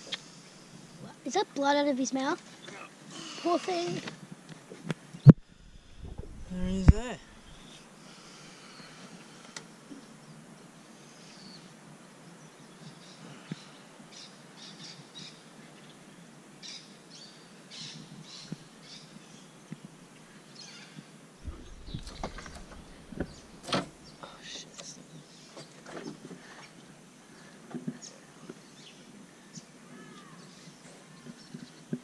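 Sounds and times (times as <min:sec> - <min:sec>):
birds chirping: 0:05.2 - 0:07.8, 0:21.4 - 0:25.4
low rumbling noise: 0:05.3 - 0:07.8, 0:21.4 - 0:24.4
sharp clicks: 0:21.5 - 0:24.2.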